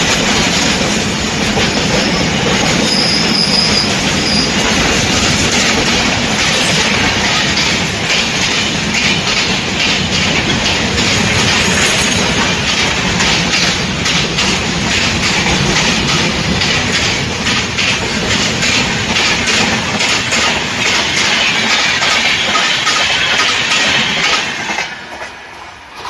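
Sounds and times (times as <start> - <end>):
wheels clattering over rail joints: 0.0 - 25.4.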